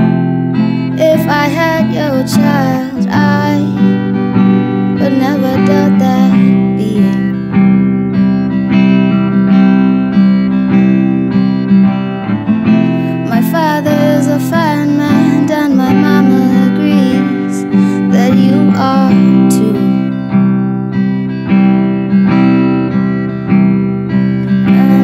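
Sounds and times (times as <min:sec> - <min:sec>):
acoustic guitar strumming: 0:00.0 - 0:25.0
woman singing: 0:00.8 - 0:04.0, 0:05.0 - 0:07.4, 0:13.0 - 0:20.5, 0:24.4 - 0:25.0.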